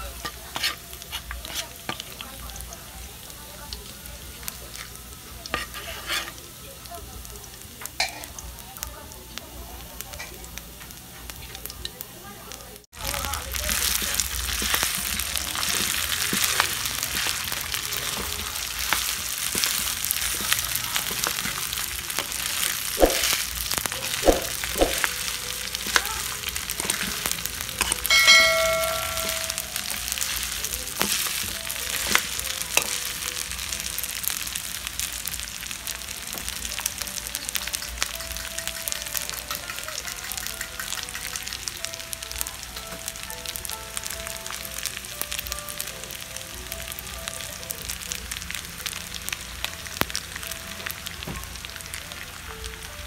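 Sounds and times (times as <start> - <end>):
rice sizzling in a pan: 0.0 - 53.0
spatula scraping a pan: 0.1 - 2.2, 4.8 - 6.4, 13.8 - 33.0.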